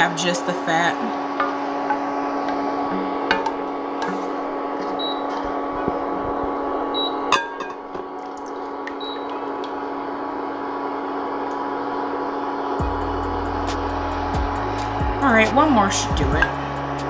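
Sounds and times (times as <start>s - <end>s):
induction cooktop hum: 0.0s - 17.0s
spoon scraping a pot: 3.3s - 5.6s.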